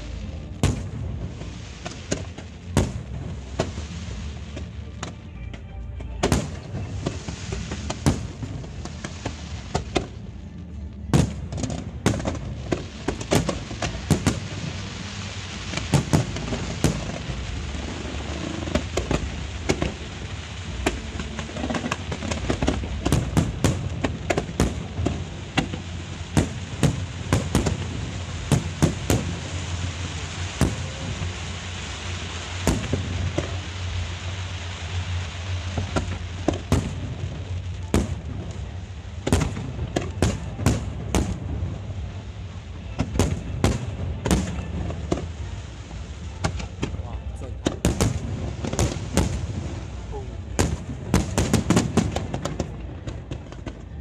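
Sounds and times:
continuous low rumble: 0.0 - 54.0
fireworks shells bursting: 11.1 - 42.2.

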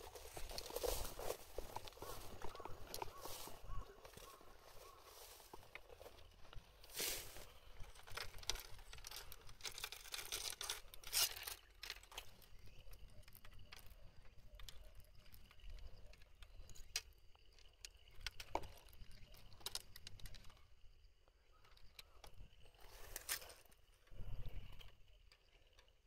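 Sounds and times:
crinkly rustling handling noise: 0.0 - 12.6
light clicks and ticks: 7.4 - 26.0.

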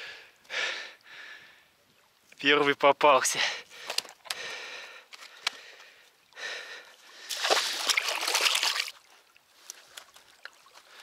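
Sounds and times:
water splashing at the edge: 7.0 - 11.0.

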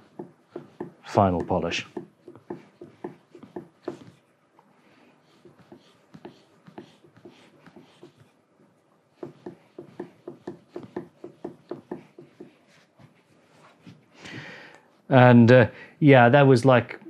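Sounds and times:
chisel stroking on a strop: 0.0 - 4.2, 5.2 - 8.3, 9.2 - 13.1.

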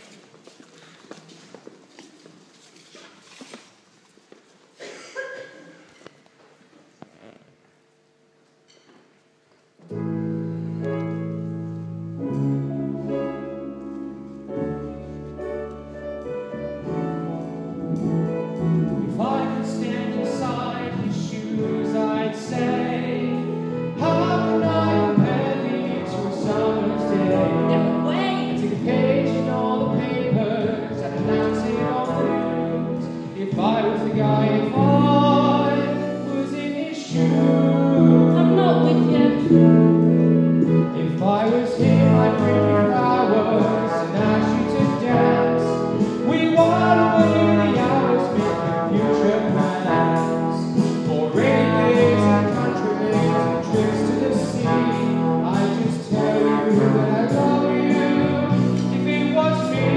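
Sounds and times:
solo singing voice: 19.1 - 59.9.

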